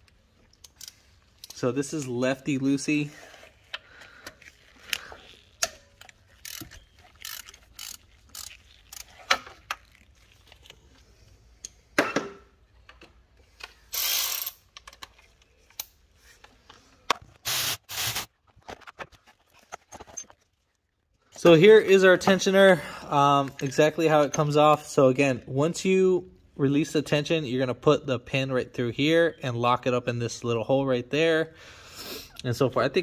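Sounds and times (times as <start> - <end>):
hand ratchet clicking: 0.6 - 1.6, 4.2 - 9.4, 13.9 - 14.6.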